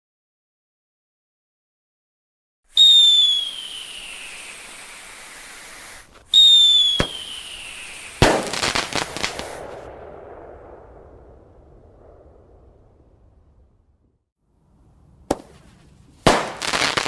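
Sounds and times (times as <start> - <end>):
whistling fireworks: 2.7 - 14.2, 16.2 - 17.0
crackling pops: 3.2 - 10.1, 15.3 - 17.0
sharp crack: 3.2 - 14.0, 15.2 - 17.0
firework bang: 5.4 - 14.2, 15.3 - 15.6, 16.2 - 17.0.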